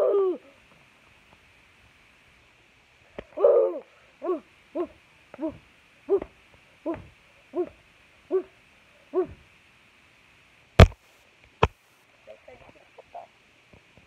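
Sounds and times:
voice making short hoo cries: 0:00.0 - 0:00.5, 0:03.4 - 0:08.5, 0:09.1 - 0:09.4.

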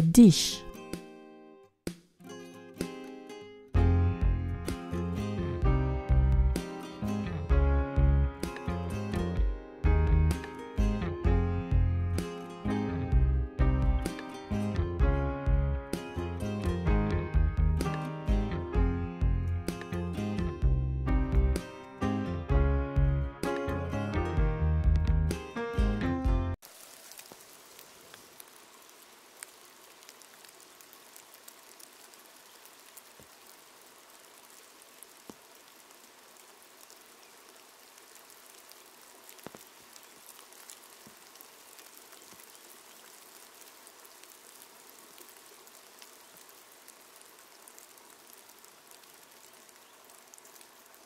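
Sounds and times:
light rain on a pond: 0:02.3 - 0:18.6, 0:26.5 - 0:51.0.

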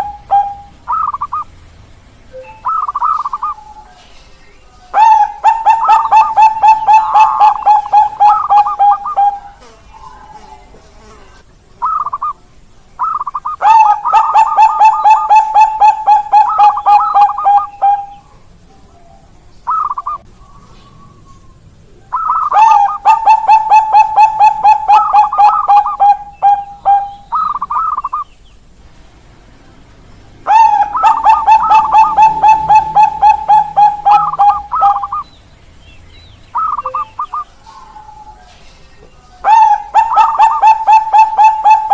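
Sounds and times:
dove cooing: 0:00.0 - 0:01.5, 0:02.4 - 0:04.0, 0:04.9 - 0:12.4, 0:13.0 - 0:28.3, 0:30.3 - 0:35.3, 0:36.5 - 0:41.9.

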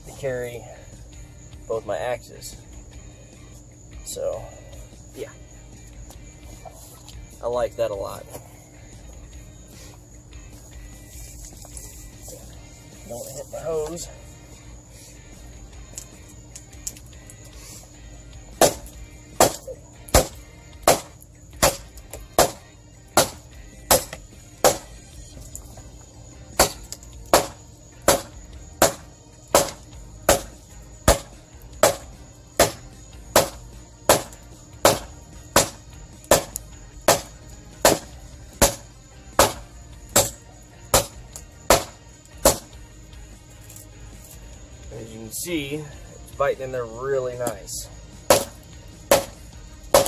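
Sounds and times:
hatchet chopping log: 0:18.6 - 0:25.0, 0:26.6 - 0:42.7, 0:48.3 - 0:50.0.

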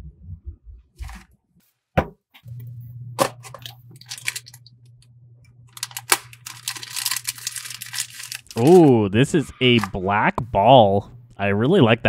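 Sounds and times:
plastic packets crinkling: 0:03.5 - 0:04.7, 0:05.7 - 0:09.0.

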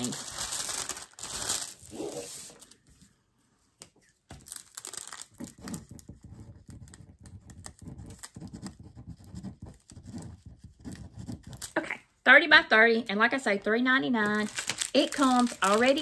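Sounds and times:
plastic packaging crinkling: 0:00.0 - 0:02.8, 0:04.3 - 0:06.0, 0:14.2 - 0:16.0.

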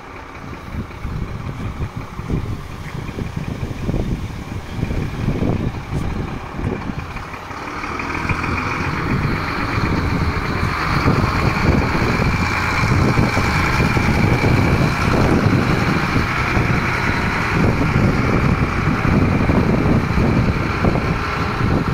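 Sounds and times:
diesel truck engine idling: 0:00.0 - 0:21.9
wind buffeting microphone: 0:00.0 - 0:21.9.

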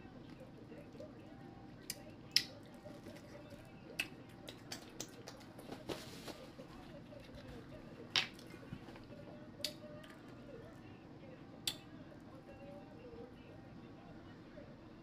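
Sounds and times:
low steady background hum: 0:00.0 - 0:15.0
chewing corn on the cob: 0:01.8 - 0:05.8
paper napkin rustle: 0:05.6 - 0:07.8.

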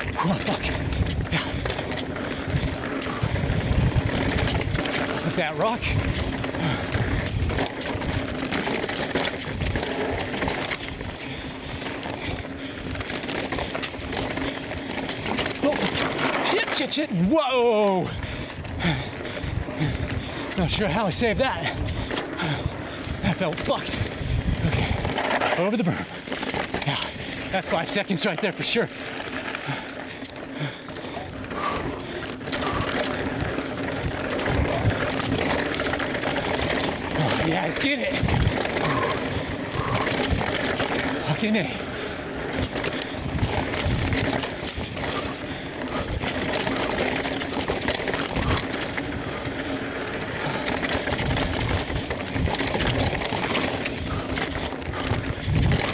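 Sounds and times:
bike rattling and knocking: 0:00.0 - 0:55.9
bike tyres on rocky trail: 0:00.0 - 0:55.9
wind on microphone: 0:02.4 - 0:04.9, 0:21.7 - 0:25.2, 0:51.0 - 0:55.9.

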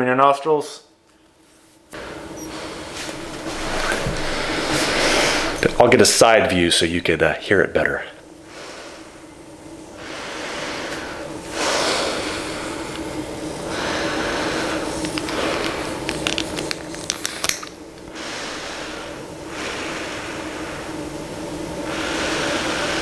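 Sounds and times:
faint steady hum: 0:00.0 - 0:23.0
air hissing through mask: 0:01.9 - 0:06.7, 0:08.4 - 0:23.0
fingers clicking and rubbing mask: 0:15.0 - 0:17.8.

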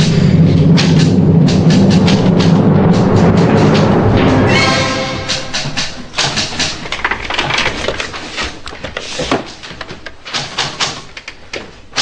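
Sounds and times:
fast typing-like clicks: 0:09.8 - 0:11.4.

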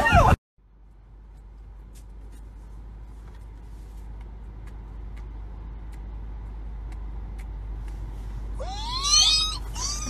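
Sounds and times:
low rumble inside car: 0:00.0 - 0:10.0.

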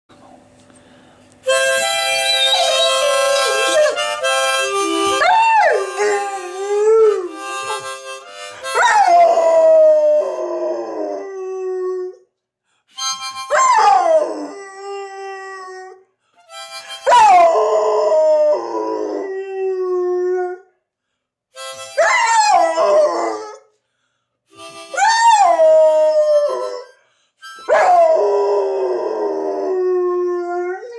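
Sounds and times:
harmonica notes: 0:01.4 - 0:09.4, 0:12.9 - 0:13.6, 0:16.4 - 0:17.4, 0:21.5 - 0:23.5, 0:24.5 - 0:28.6
dog howling: 0:02.3 - 0:04.0, 0:22.0 - 0:23.6.

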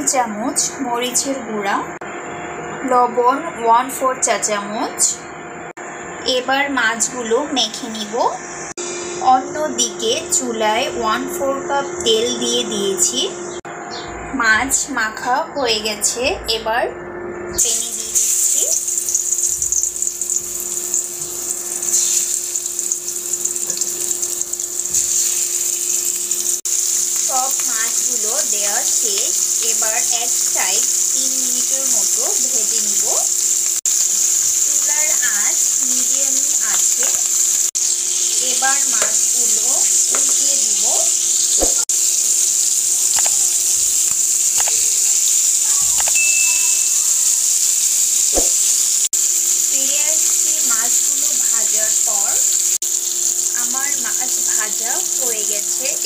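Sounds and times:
steady low hum: 0:01.3 - 0:22.1
fish sizzling in hot oil: 0:17.6 - 0:56.0
spatula knocking on pan: 0:48.3 - 0:48.7.

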